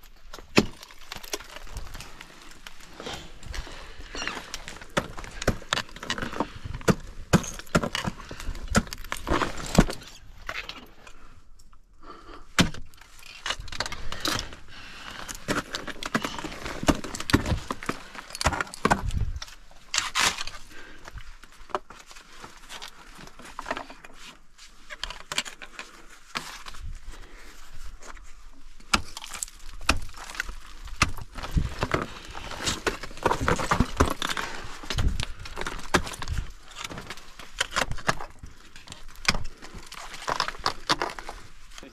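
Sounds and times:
metal climbing gear clinking: 0:12.8 - 0:24.1.

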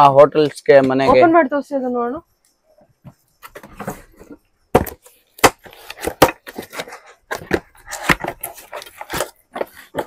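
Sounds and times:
cardboard box handled and opened: 0:05.7 - 0:10.0.

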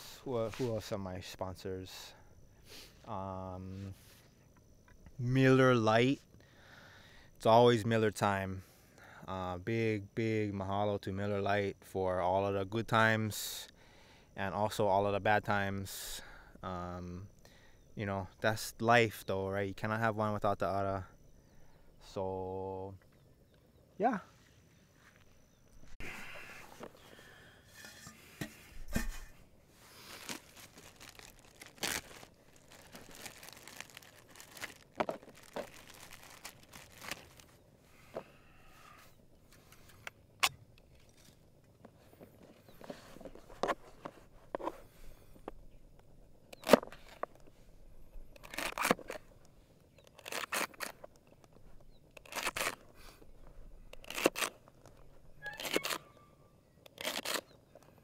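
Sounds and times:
handling knocks and rustles: 0:30.0 - 0:37.4.

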